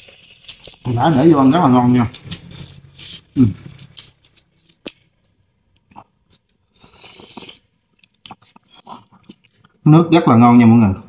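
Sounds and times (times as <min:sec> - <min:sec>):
slurp of soup from spoon: 0:06.7 - 0:07.7.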